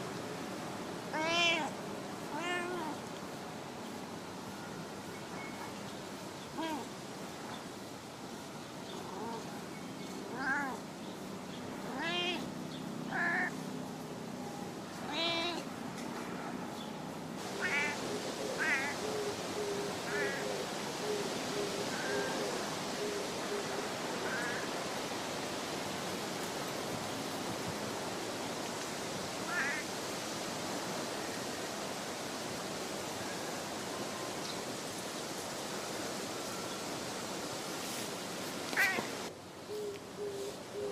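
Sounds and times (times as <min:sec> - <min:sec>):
steady background hiss: 0:00.0 - 0:40.9
cat meowing softly: 0:01.1 - 0:03.0, 0:06.6 - 0:06.9, 0:10.2 - 0:10.8, 0:11.8 - 0:12.5, 0:13.1 - 0:13.5, 0:15.0 - 0:15.7, 0:17.6 - 0:18.0, 0:38.7 - 0:39.1.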